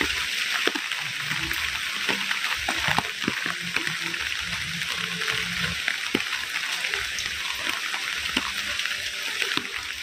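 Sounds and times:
heavy rain falling: 0:00.0 - 0:10.0
rain drips and splashes: 0:00.0 - 0:10.0.

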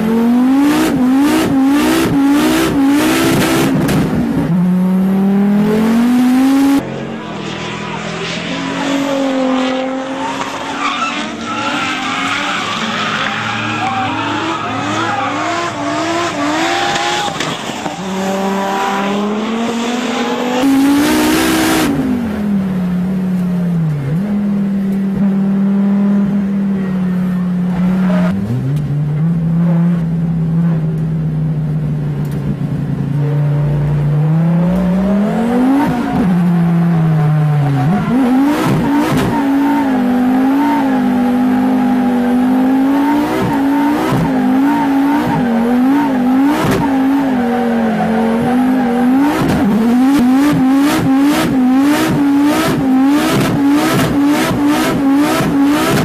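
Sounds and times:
car engine revving: 0:00.0 - 0:56.0
tyres squealing: 0:10.0 - 0:15.8.

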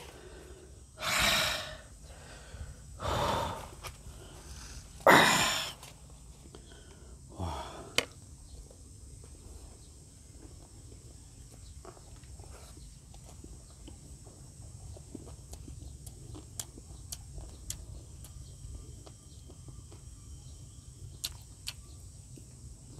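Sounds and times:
man breathing out hard: 0:00.0 - 0:05.8, 0:06.6 - 0:08.0.

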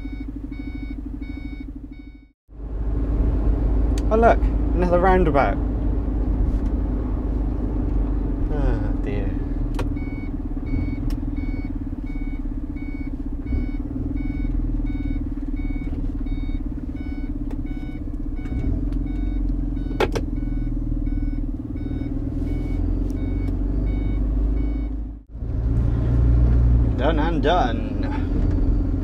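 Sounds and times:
turn indicator beeps: 0:00.0 - 0:02.3, 0:09.7 - 0:25.1, 0:28.0 - 0:29.0
truck diesel engine drone: 0:00.0 - 0:29.0.

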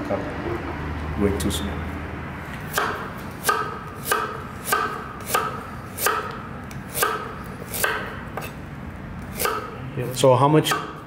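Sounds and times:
knife chopping on cutting board: 0:02.7 - 0:08.6, 0:09.3 - 0:09.8.

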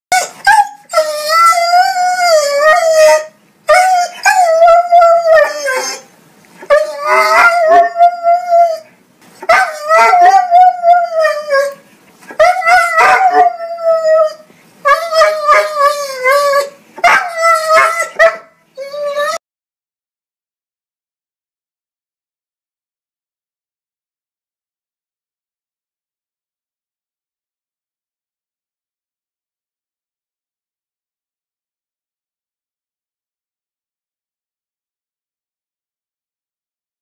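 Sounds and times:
dog howling: 0:00.2 - 0:06.1, 0:06.7 - 0:08.9, 0:09.5 - 0:11.8, 0:12.4 - 0:19.4.

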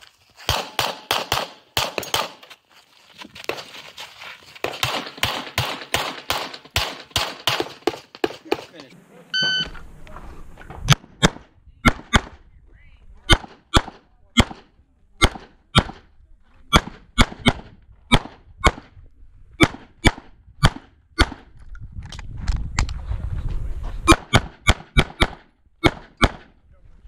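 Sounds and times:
pistol shots: 0:00.5 - 0:02.4, 0:04.6 - 0:08.9, 0:10.9 - 0:12.4, 0:13.3 - 0:16.1, 0:16.7 - 0:18.9, 0:24.1 - 0:26.6
shot timer beep: 0:09.4 - 0:09.7.

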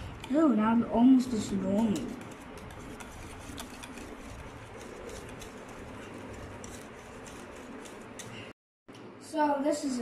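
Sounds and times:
whisk clicking against plastic bowl: 0:01.4 - 0:08.4.

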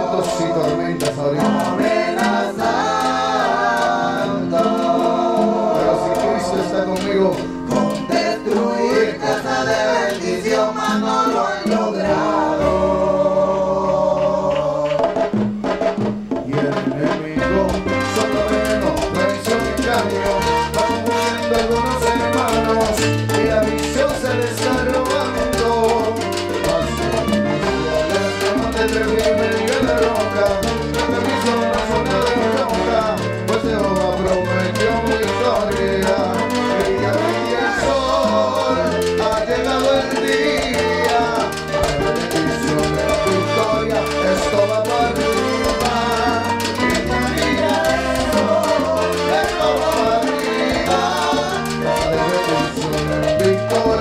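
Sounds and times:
lead singer singing: 0:00.0 - 0:15.4, 0:16.5 - 0:54.0
bass line: 0:00.0 - 0:54.0
congas and timbales: 0:00.0 - 0:54.0
salsa band playing: 0:00.0 - 0:54.0
horn section: 0:12.1 - 0:39.0, 0:41.4 - 0:53.9.

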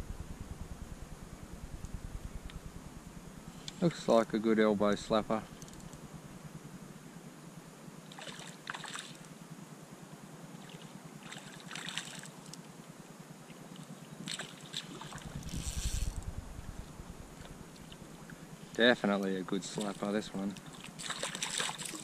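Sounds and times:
fish splashing in shallow water: 0:08.1 - 0:09.2, 0:10.6 - 0:12.5, 0:13.7 - 0:16.2, 0:20.6 - 0:22.0.

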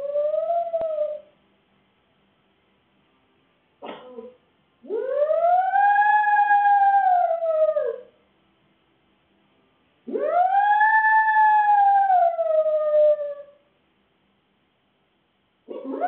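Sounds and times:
dog howling: 0:00.0 - 0:01.3, 0:04.8 - 0:08.1, 0:10.1 - 0:13.6, 0:15.7 - 0:16.0.

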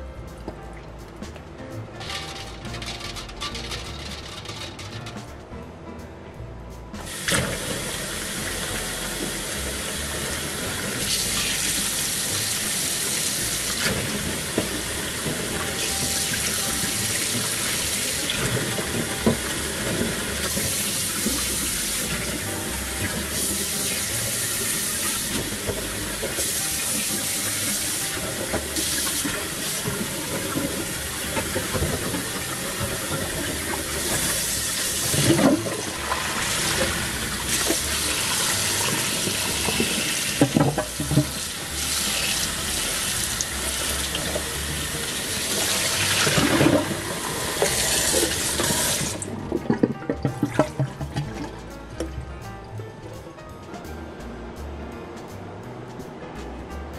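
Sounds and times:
tap water running into steel bowl: 0:07.1 - 0:51.5.

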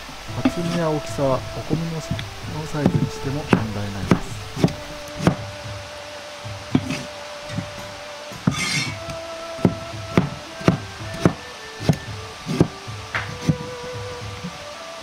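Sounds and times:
cleaver chopping on cutting board: 0:02.8 - 0:05.4, 0:09.6 - 0:13.6
blade scraping board: 0:08.4 - 0:09.0.

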